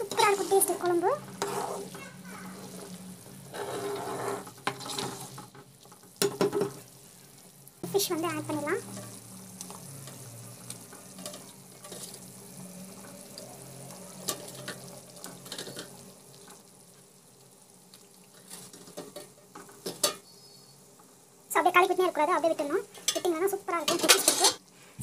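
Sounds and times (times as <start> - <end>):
spatula scraping a pan: 0.0 - 6.8, 8.8 - 10.2, 10.8 - 12.4, 18.4 - 20.4, 23.9 - 24.6.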